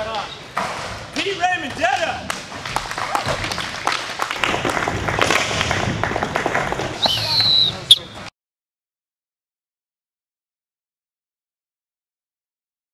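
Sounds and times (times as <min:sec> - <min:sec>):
people clapping and cheering: 0:01.8 - 0:07.9
loud sharp crack: 0:04.3 - 0:07.5
high whistle: 0:07.0 - 0:08.2.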